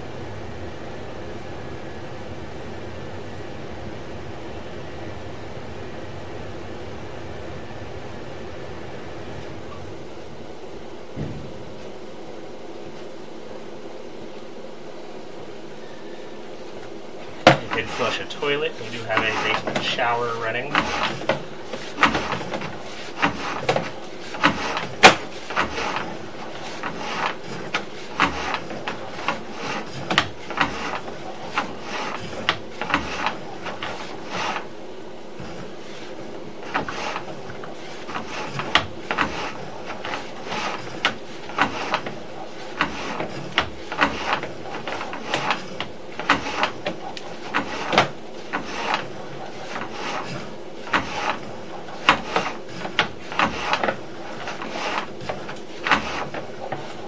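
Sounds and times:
cable rubbing and clicking: 16.8s - 57.0s.

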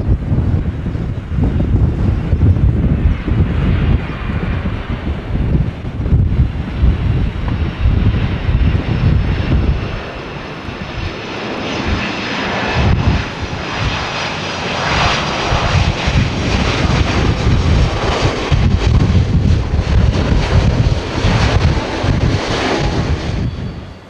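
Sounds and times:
jet engines: 0.0s - 24.0s
wind buffeting microphone: 0.0s - 24.0s.

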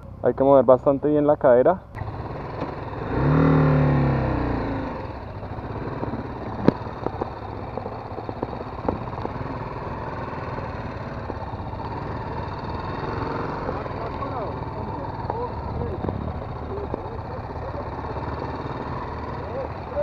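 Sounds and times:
motorcycle engine revving: 1.9s - 20.0s
sharp clicks and knocks: 6.0s - 9.4s.

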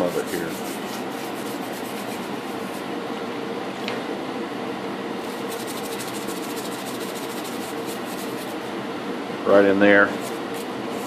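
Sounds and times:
brush scrubbing metal: 0.0s - 2.9s, 5.2s - 8.7s, 10.1s - 11.0s
heater humming: 0.0s - 11.0s.

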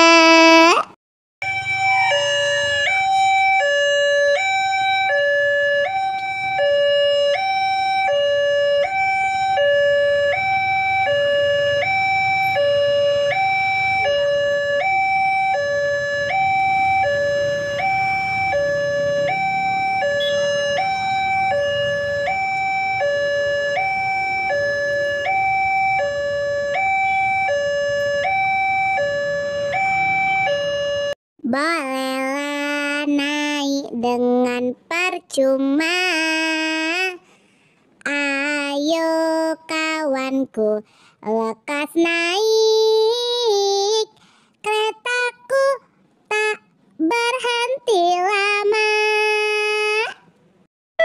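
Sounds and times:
two-tone hi-lo siren: 1.4s - 31.2s.

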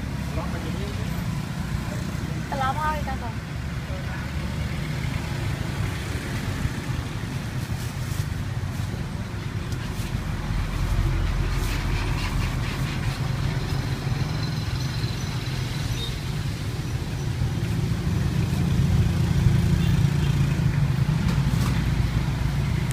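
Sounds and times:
street traffic rumble: 0.0s - 22.9s.

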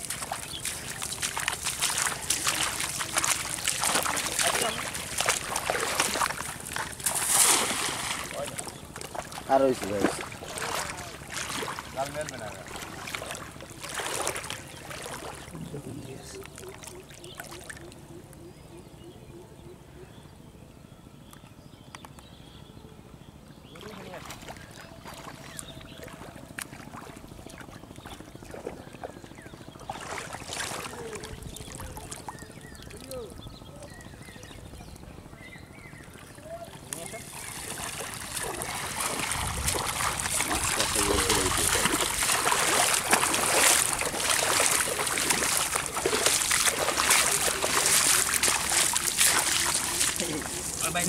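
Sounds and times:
net splashing through water: 0.0s - 15.5s, 29.9s - 32.1s, 37.0s - 51.0s.

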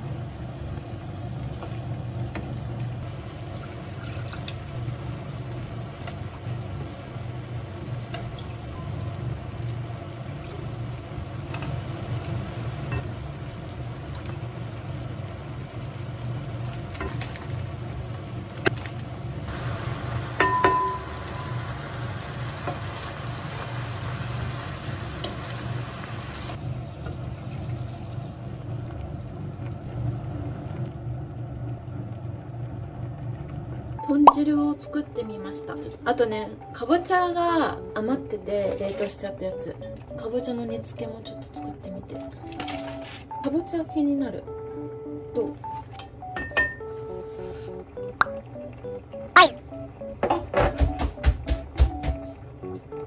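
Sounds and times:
food sizzling in a pan: 19.5s - 28.5s.

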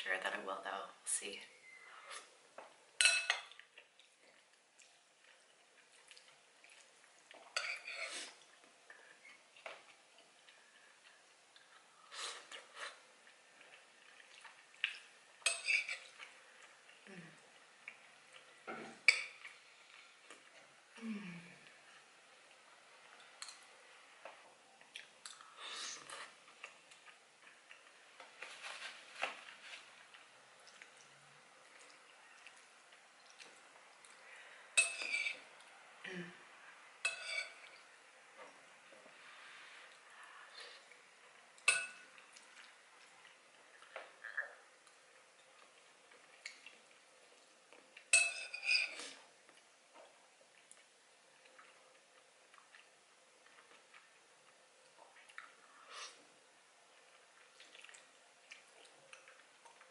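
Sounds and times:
spoon scraping ceramic bowl: 34.8s - 35.4s, 37.1s - 37.6s, 48.2s - 49.2s.

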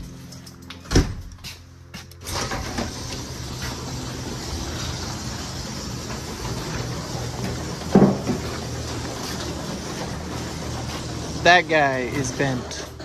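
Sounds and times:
door banging shut: 0.9s - 1.4s, 7.4s - 8.5s.

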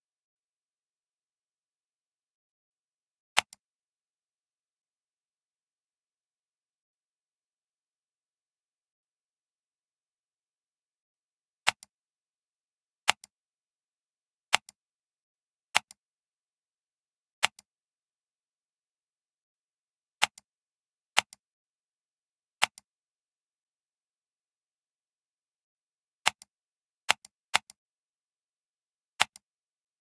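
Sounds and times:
computer mouse clicks: 3.4s - 3.6s, 11.6s - 11.9s, 13.0s - 13.3s, 14.5s - 14.8s, 15.7s - 16.0s, 17.4s - 17.7s, 20.2s - 20.5s, 21.2s - 21.4s, 22.6s - 22.9s, 26.2s - 26.5s, 27.1s - 27.8s, 29.2s - 29.5s.

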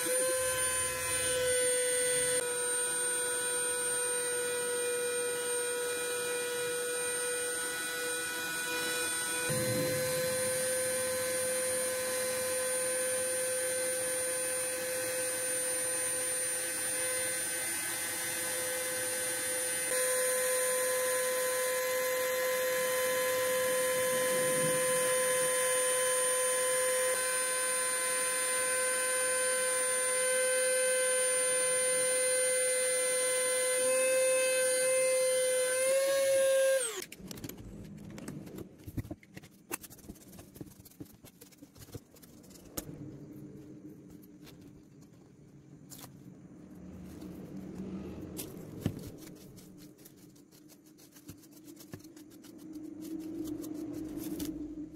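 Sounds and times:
router spindle high-pitched whine: 0.0s - 37.1s.

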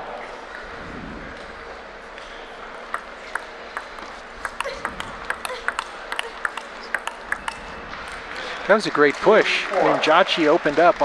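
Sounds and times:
table tennis ball clicking: 2.9s - 8.3s.

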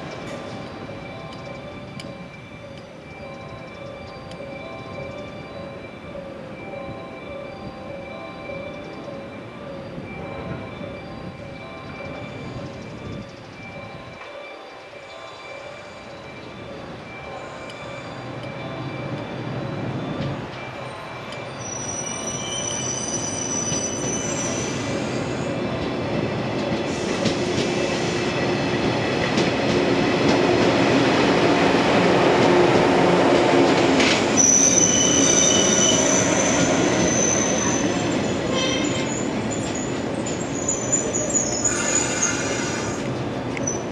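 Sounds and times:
electric train running noise: 0.0s - 43.9s
high-pitched brake squeal: 21.4s - 25.5s, 34.4s - 43.9s.

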